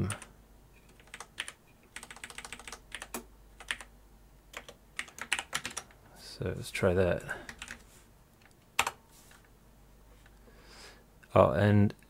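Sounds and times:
keyboard keys tapping: 0.9 - 3.9, 4.5 - 5.9.

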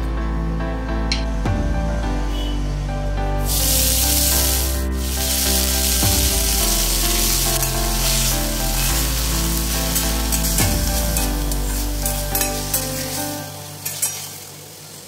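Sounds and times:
background music with held notes: 0.0 - 15.0
leaves sizzling in hot oil: 3.4 - 15.0
spatula scraping pan: 7.5 - 14.5.

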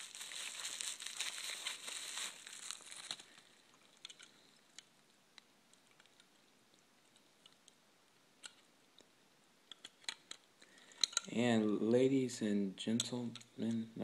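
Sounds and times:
packaging crinkling and tearing: 0.0 - 4.0.

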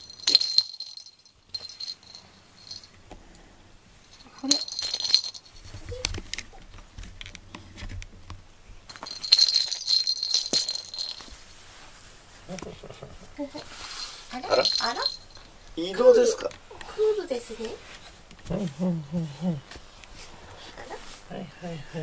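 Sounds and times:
rustling: 0.0 - 3.0, 3.9 - 8.1, 8.8 - 18.7
small jingle bell jingling: 0.0 - 3.0, 4.0 - 6.0, 8.9 - 11.5, 13.8 - 16.5.

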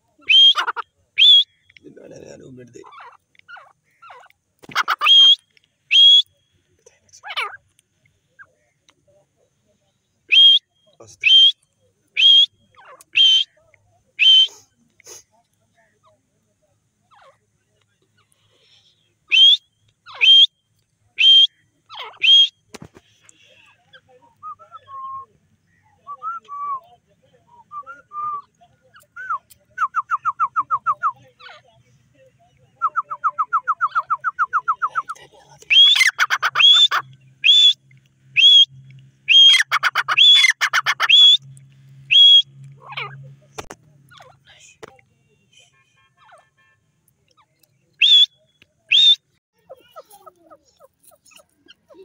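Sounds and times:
sharp high bird calls: 0.2 - 1.9, 2.7 - 6.4, 10.3 - 13.6, 14.2 - 14.6, 18.2 - 20.6, 21.2 - 22.7, 35.7 - 41.5, 42.1 - 43.2, 47.3 - 52.0
fast bird chatter: 0.5 - 5.4, 35.7 - 37.7, 39.4 - 41.4.

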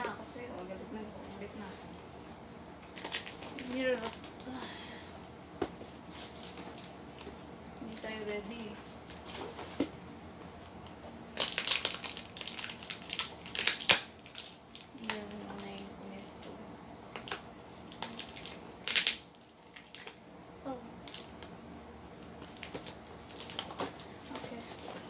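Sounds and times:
packaging crinkling: 2.8 - 4.5, 10.8 - 15.9, 17.2 - 20.2, 22.2 - 25.0.

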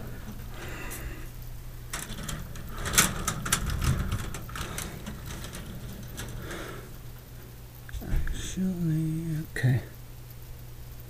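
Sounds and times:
wires and connectors rattling: 0.0 - 8.1.

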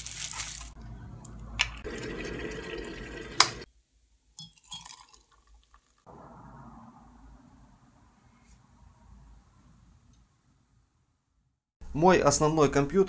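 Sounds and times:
water pouring into a ceramic mug: 1.8 - 3.7, 4.4 - 6.0.

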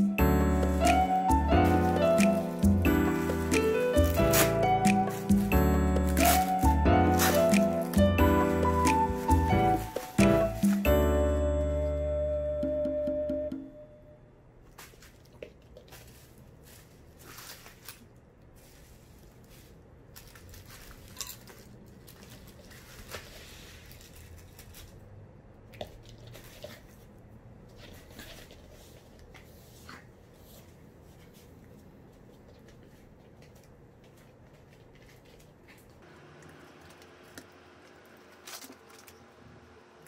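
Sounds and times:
bubble wrap rustling: 0.2 - 11.1, 14.6 - 25.1, 36.9 - 39.3.

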